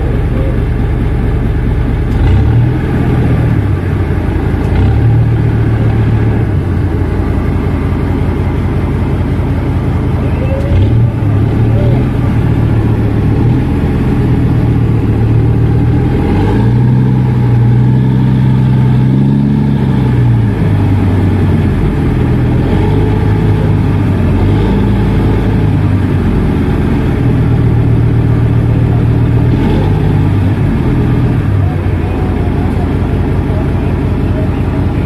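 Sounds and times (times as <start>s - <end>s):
boat engine running: 0.0s - 35.0s.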